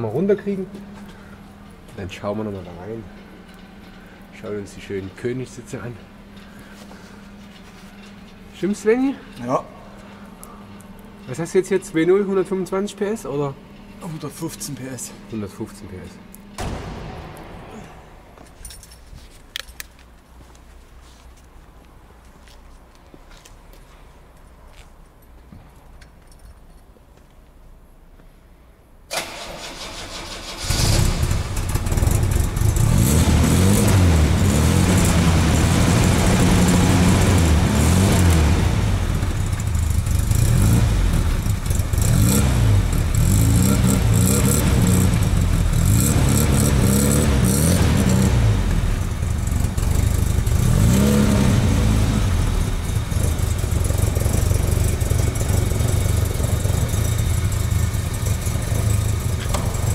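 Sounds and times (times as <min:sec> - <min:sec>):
car engine cranking and revving: 0:29.1 - 0:59.9.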